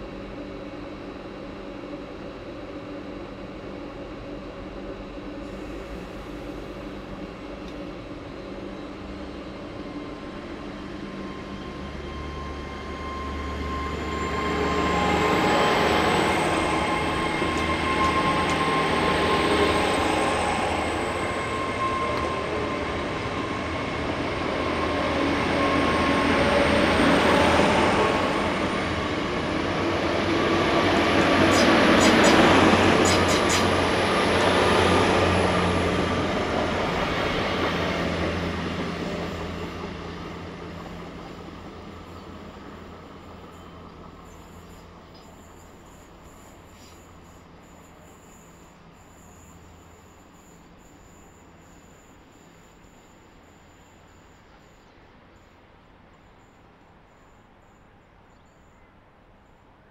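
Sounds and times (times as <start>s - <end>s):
diesel train passing: 0.0s - 59.9s
high whine: 11.0s - 42.6s.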